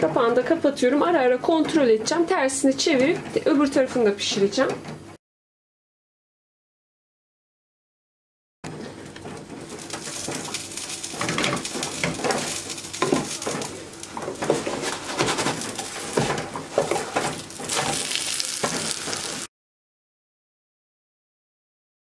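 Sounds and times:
water boiling and bubbling: 8.9 - 19.5
food frying in butter: 9.1 - 19.5
eggs knocking against pot: 9.8 - 17.7.

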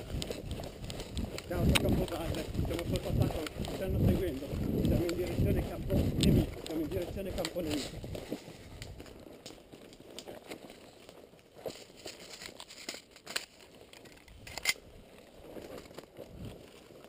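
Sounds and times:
twigs snapping: 0.0 - 10.7
footsteps crunching through dry leaves: 0.0 - 14.0, 14.8 - 17.0
gear and clothing rustling: 0.0 - 17.0.

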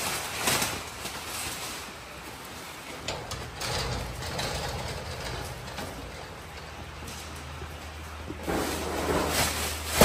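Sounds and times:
steady low hum: 0.8 - 10.0
knocks and scraping of crate: 8.3 - 10.0.

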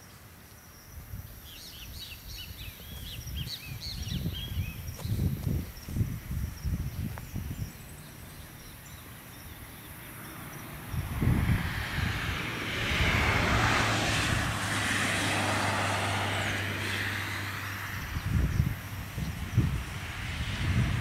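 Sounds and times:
vehicle passing by: 7.5 - 21.0.

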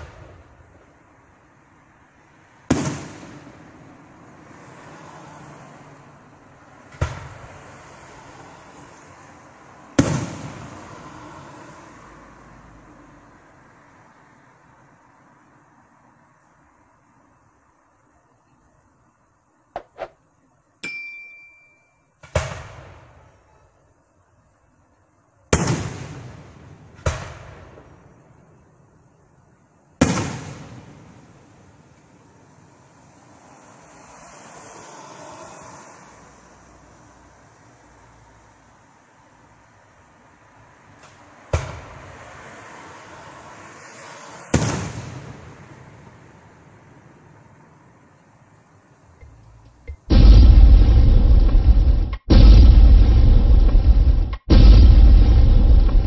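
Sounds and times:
fireworks bursting: 19.8 - 20.2
short bell-like ding: 20.8 - 22.0
fireworks rumble: 49.9 - 56.0.

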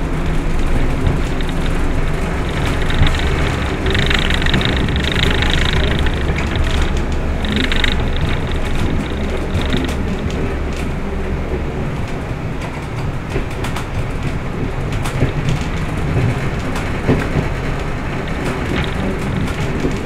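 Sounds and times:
diesel engine drone: 0.0 - 20.0
wheels rumbling on rails: 0.0 - 20.0
clicks and knocks: 0.7 - 10.9.

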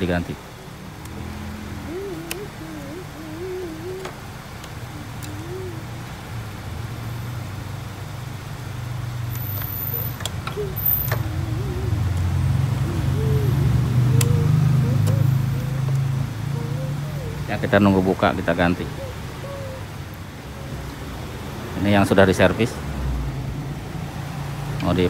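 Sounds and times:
engine humming: 0.0 - 25.0.

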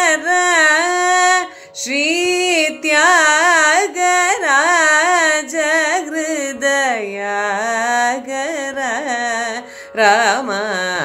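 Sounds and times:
woman singing ornamented notes: 0.0 - 11.0.

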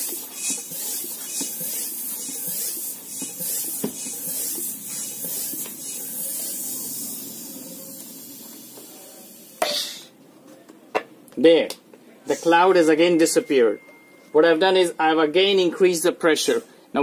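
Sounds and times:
bicycle pump hissing: 0.0 - 9.8.

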